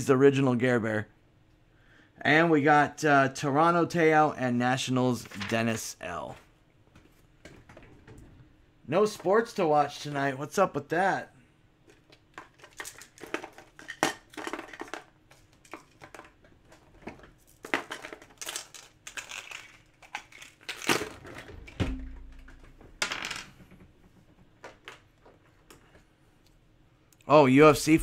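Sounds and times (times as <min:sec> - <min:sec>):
heavy knock: 0:21.6 - 0:24.4.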